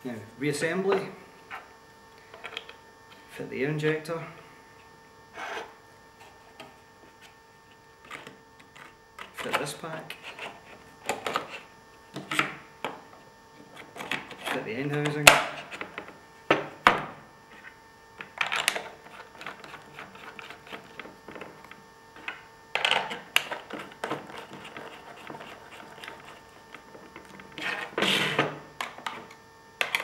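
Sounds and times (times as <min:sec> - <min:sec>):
scraping rasp: 0:23.6 - 0:26.5, 0:27.5 - 0:28.4.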